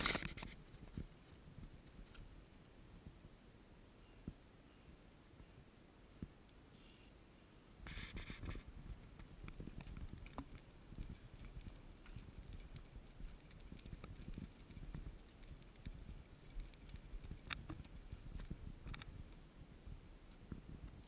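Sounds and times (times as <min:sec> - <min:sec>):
light clicks and patter: 0:00.0 - 0:02.8, 0:07.9 - 0:19.4
wind rumble on microphone: 0:00.0 - 0:03.4, 0:07.8 - 0:21.0.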